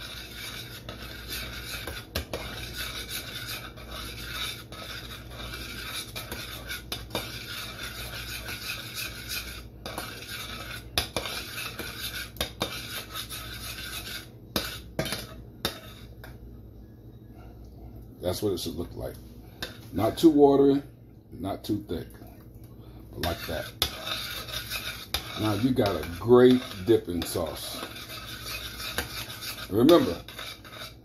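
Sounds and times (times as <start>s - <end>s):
utensil scraping metal saucepan: 0.0s - 16.3s, 23.2s - 31.0s.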